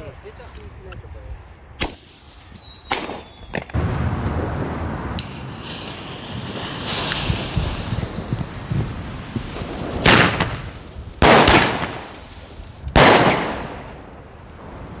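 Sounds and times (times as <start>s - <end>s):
firecracker bangs: 1.8s - 4.2s, 5.6s - 12.3s, 12.9s - 14.0s
fuses fizzing: 5.2s - 9.8s.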